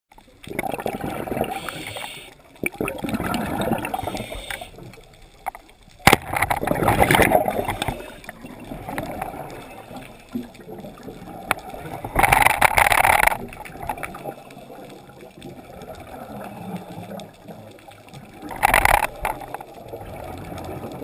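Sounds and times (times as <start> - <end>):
muffled underwater rushing: 0.2 - 21.0.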